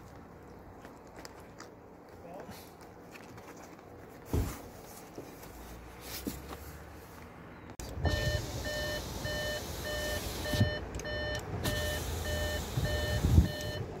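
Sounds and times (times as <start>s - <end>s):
electronic warning beeps: 8.0s - 13.9s.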